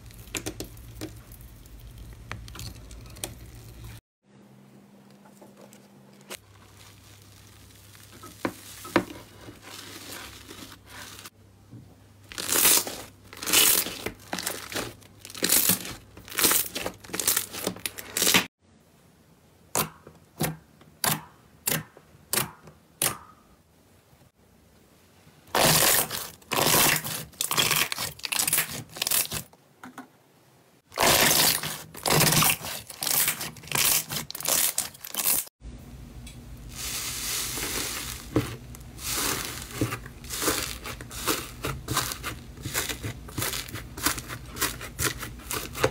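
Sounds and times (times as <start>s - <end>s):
slime squelching and crackling: 0.0s - 4.0s, 6.4s - 11.3s, 12.3s - 18.5s, 25.5s - 29.5s, 30.9s - 35.5s, 36.7s - 45.9s.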